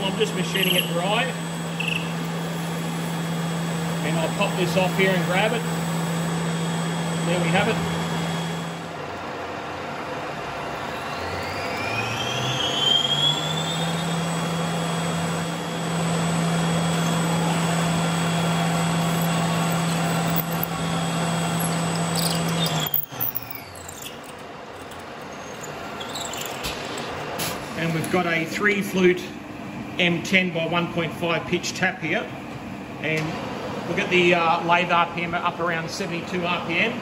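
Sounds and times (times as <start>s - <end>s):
lathe drilling with whine: 0.0s - 9.0s, 10.3s - 27.4s.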